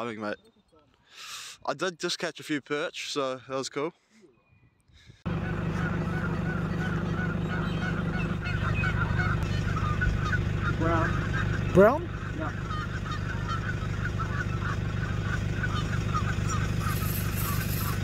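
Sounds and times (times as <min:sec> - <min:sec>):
birds chattering: 0:04.0 - 0:18.0.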